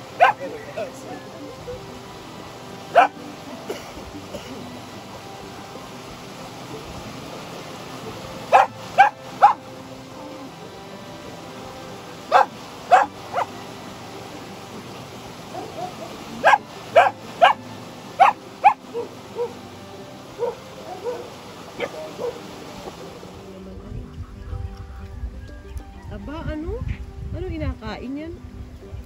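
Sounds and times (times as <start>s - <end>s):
young dog barking: 0.2s - 0.5s, 2.9s - 3.2s, 8.5s - 9.6s, 12.3s - 13.5s, 15.5s - 17.6s, 18.2s - 19.6s, 20.4s - 22.4s.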